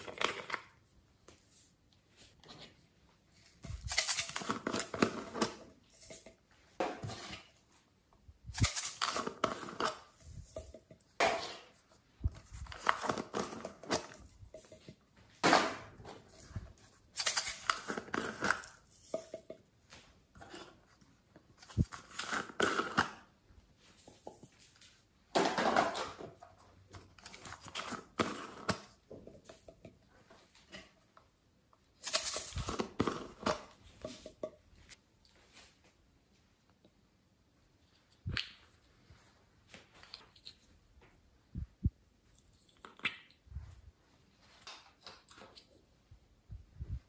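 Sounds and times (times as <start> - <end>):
plastic containers scraping and clicking: 0.0 - 0.7, 8.6 - 19.6.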